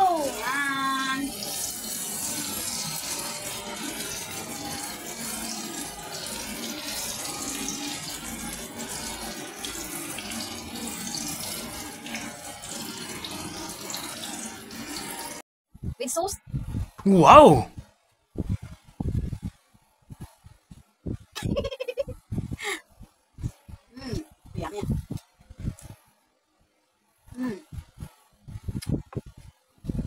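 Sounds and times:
eggplant frying in hot oil: 0.0 - 15.4.

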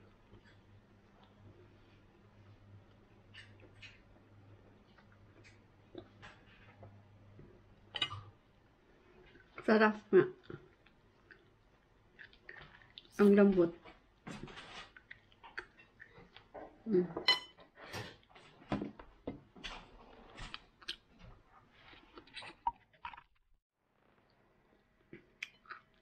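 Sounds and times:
person chewing: 10.4 - 13.2, 14.8 - 16.5, 20.2 - 23.4, 25.1 - 26.0.

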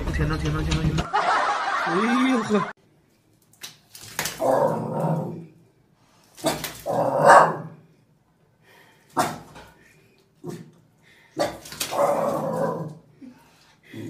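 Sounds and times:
dogs barking and growling: 4.3 - 5.6, 6.4 - 7.9, 9.1 - 9.7, 10.4 - 13.2.

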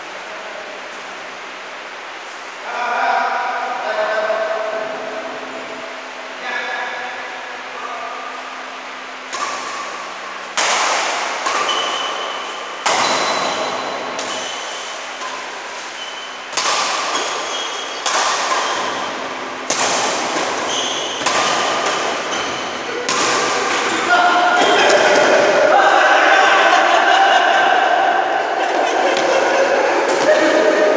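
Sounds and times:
racket hitting shuttlecock: 9.2 - 25.6, 30.0 - 30.6.

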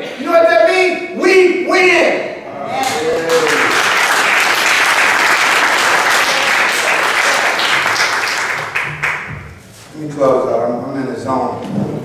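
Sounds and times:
congregation applauding: 2.8 - 9.4.

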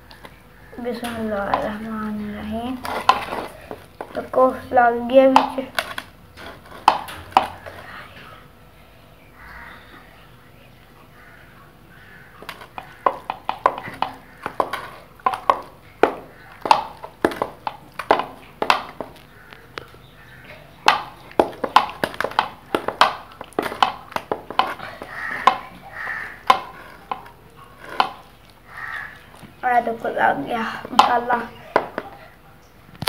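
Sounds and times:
hands slapping wet raw chicken: 12.4 - 19.3, 20.8 - 27.3.

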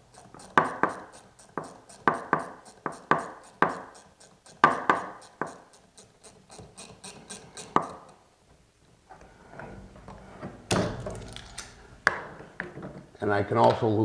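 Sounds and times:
wrench clicking and scraping: 0.0 - 8.2.

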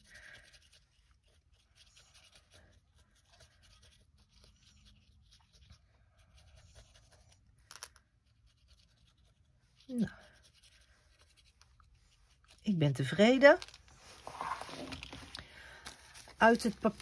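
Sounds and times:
brush pen on paper: 0.0 - 7.5, 8.2 - 12.6.

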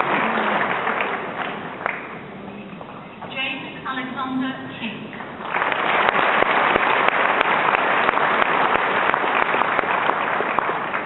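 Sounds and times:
audience applauding: 0.0 - 2.2, 5.4 - 11.0.

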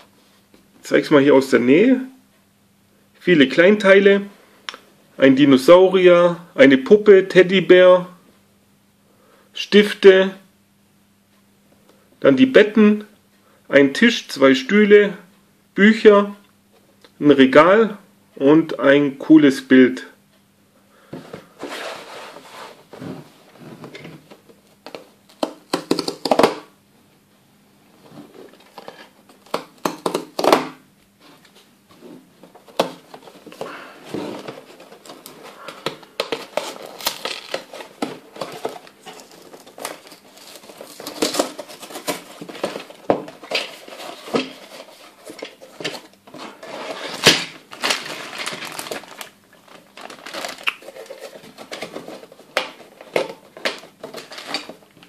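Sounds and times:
plastic bags crinkling: 34.4 - 54.8.

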